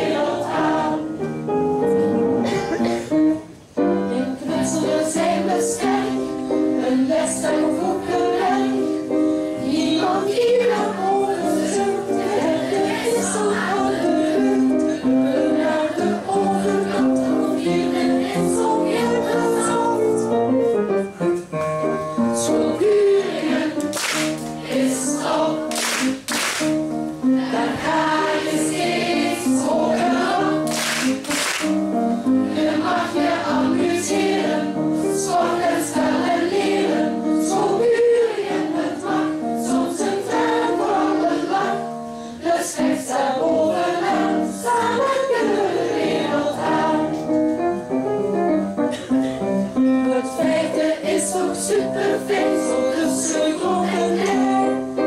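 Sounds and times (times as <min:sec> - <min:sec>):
children's choir singing: 0:00.0 - 0:01.5, 0:03.9 - 0:20.6, 0:22.2 - 0:47.8, 0:49.8 - 0:55.0
handclaps: 0:23.8 - 0:24.5, 0:25.7 - 0:26.8, 0:30.7 - 0:31.8.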